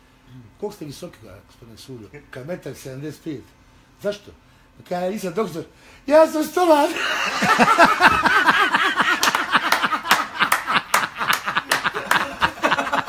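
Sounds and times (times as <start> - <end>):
man laughing heartily: 6.9 - 13.0.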